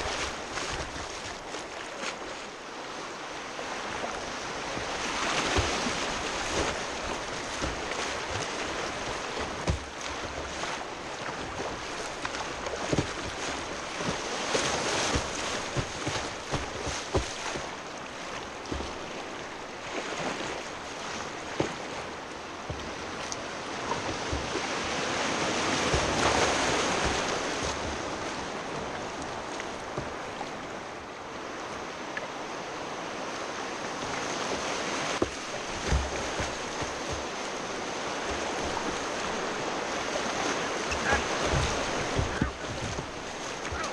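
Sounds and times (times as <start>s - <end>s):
water splashing and knocking: 0.0s - 1.3s, 4.7s - 20.4s, 21.2s - 30.4s, 34.5s - 43.9s
whitewater rapids rushing: 0.0s - 1.6s, 3.1s - 43.9s.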